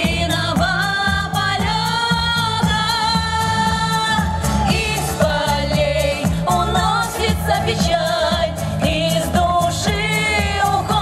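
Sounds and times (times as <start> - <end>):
instrumental accompaniment with bass beat: 0.0 - 11.0
women singing pop song: 0.0 - 11.0.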